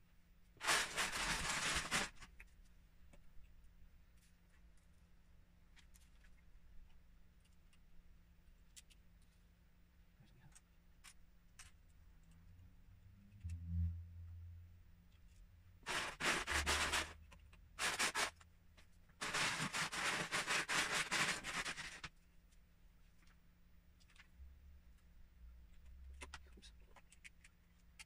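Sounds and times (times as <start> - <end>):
plastic bricks clicking and scraping: 15.9 - 18.4.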